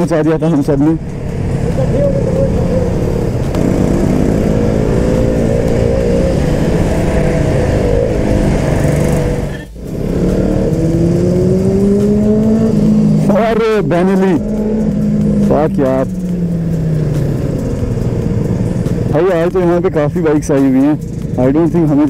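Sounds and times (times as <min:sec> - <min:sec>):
motorcycle engine running: 0:00.0 - 0:22.0
wind rush: 0:01.0 - 0:13.2.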